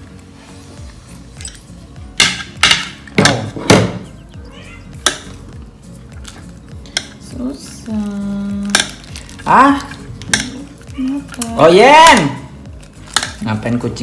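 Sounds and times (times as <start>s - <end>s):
sharp clinks: 1.4s - 1.8s.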